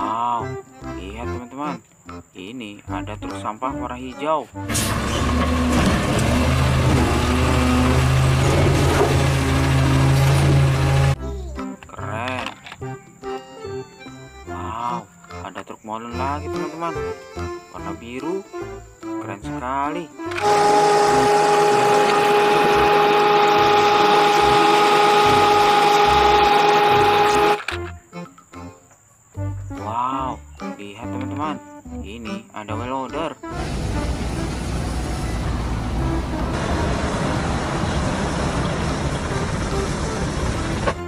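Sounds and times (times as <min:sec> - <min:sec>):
hydraulic arm deep hum: 0:04.6 - 0:11.2
motorised machine whining: 0:04.6 - 0:11.2, 0:20.3 - 0:27.8
garbage truck engine humming: 0:04.6 - 0:11.5, 0:20.2 - 0:28.0, 0:33.4 - 0:41.0.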